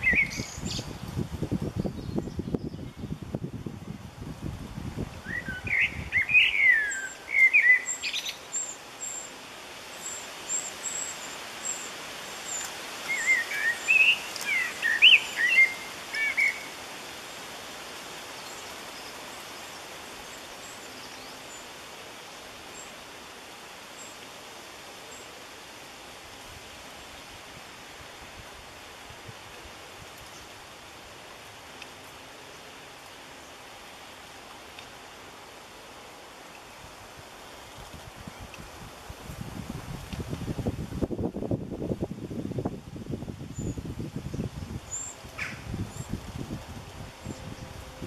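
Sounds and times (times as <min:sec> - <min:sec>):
wrens chirping: 0:00.0 - 0:01.1, 0:05.2 - 0:17.6, 0:18.2 - 0:25.4
faint high ticking calls: 0:05.2 - 0:17.5.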